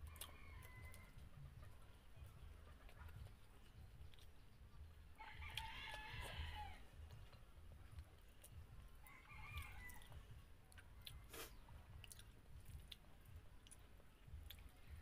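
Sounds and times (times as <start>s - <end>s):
person eating with hands: 0.0s - 1.0s, 10.7s - 14.9s
rooster crowing: 0.0s - 1.2s, 5.2s - 6.9s, 9.0s - 10.2s.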